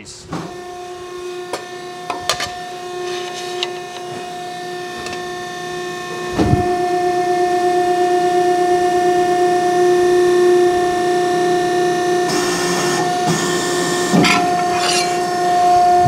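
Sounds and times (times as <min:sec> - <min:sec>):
hydraulic pump humming: 0:00.2 - 0:16.0.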